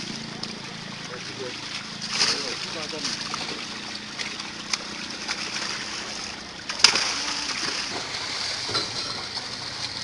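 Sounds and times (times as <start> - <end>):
fish thrashing and splashing: 0.0 - 10.0
sharp loud splash: 1.7 - 4.4, 5.2 - 9.4.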